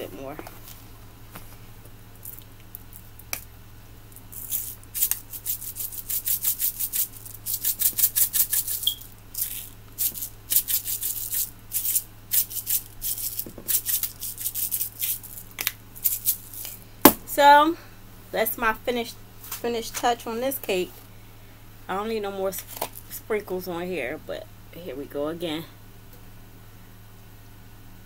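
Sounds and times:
sprinkles rattling in shaker jar: 4.2s - 16.8s.

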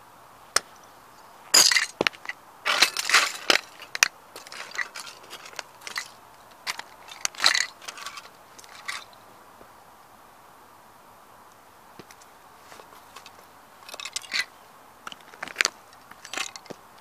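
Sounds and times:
boots crunching plastic pieces: 1.6s - 9.1s.

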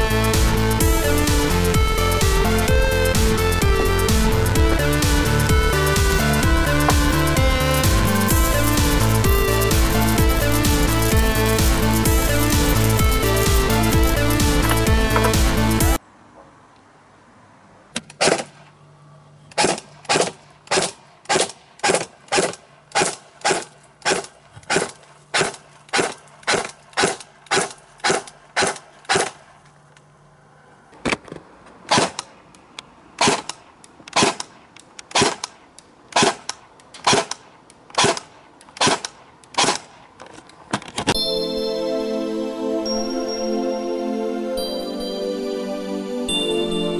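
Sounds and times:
airsoft rifle single shots: 18.0s - 18.7s, 19.5s - 29.4s, 31.9s - 32.4s, 33.2s - 40.0s.

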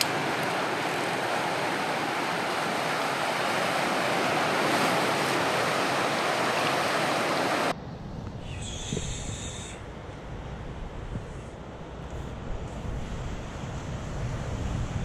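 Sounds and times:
surf washing on rocks: 0.0s - 7.7s
wind rumble on microphone: 7.7s - 15.0s.

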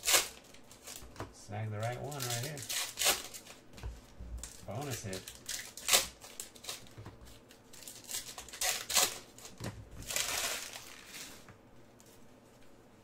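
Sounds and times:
wrapper tearing: 0.0s - 1.0s, 1.8s - 3.6s, 4.4s - 11.4s
wrapper crinkling: 1.7s - 3.7s, 4.4s - 11.5s.

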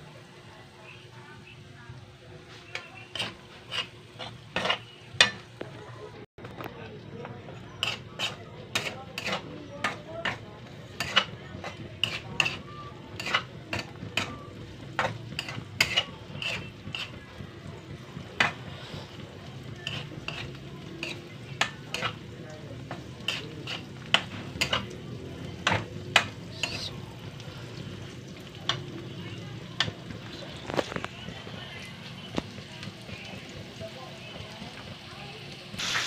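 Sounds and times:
metal spatula scraping a pan: 2.5s - 5.4s, 7.6s - 14.4s, 15.0s - 17.2s, 18.4s - 22.3s, 22.9s - 25.0s, 25.6s - 28.1s
meat sizzling: 7.7s - 36.0s.

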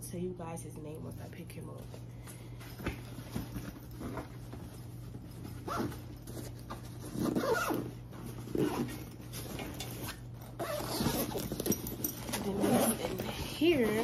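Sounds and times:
rustling inside bag: 2.4s - 14.0s
zipper on fabric bag: 5.6s - 6.3s, 6.9s - 14.0s.

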